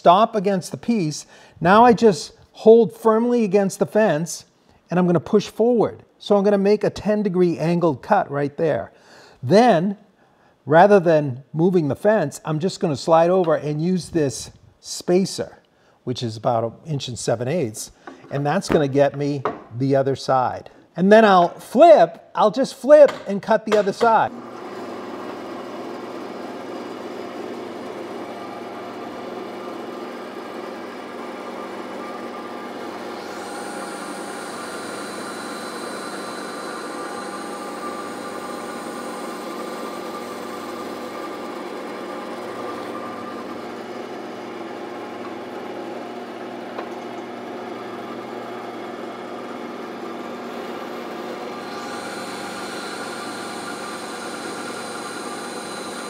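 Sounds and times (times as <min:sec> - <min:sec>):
bandsaw running: 0:23.8 - 0:56.0
saw blade hissing through wood: 0:33.2 - 0:38.1.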